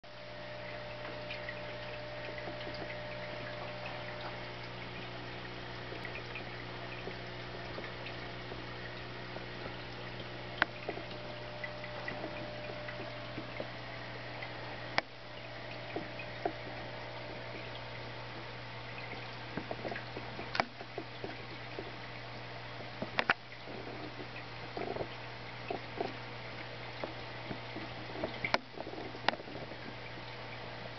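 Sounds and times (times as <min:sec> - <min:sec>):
low hum: 0:00.0 - 0:22.9
aquarium water bubbling: 0:00.0 - 0:30.9.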